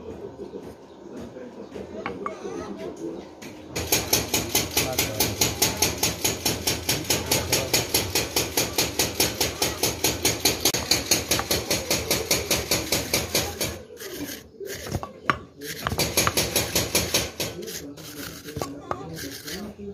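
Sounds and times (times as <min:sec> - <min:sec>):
rapid hammer blows on metal: 0:03.8 - 0:19.7.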